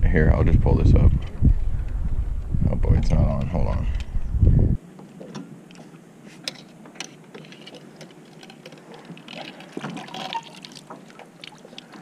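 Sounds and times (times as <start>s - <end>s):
water splashing and dripping: 7.0s - 12.0s.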